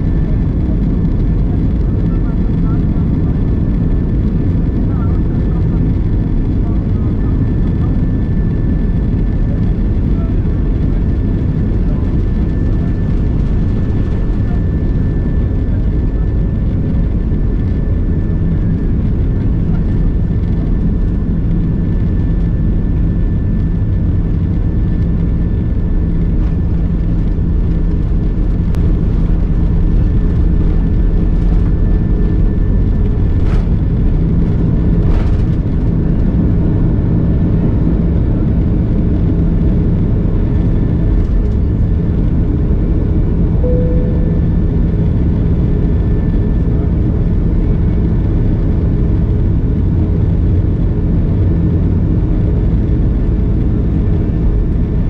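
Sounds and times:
airplane cabin engine drone: 0.0 - 55.0
faint high whine: 43.5 - 47.1.

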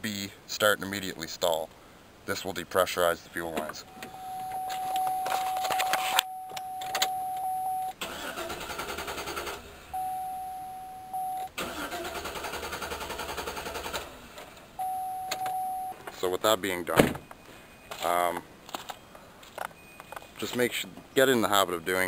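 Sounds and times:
steady high tone: 3.8 - 8.0, 9.9 - 11.5, 14.8 - 16.0
engine cranking without starting: 8.0 - 9.8, 11.5 - 14.4.

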